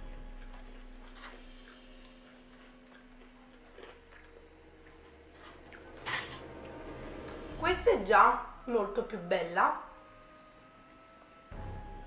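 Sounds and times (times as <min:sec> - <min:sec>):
quiet chewing: 0:00.0 - 0:07.4.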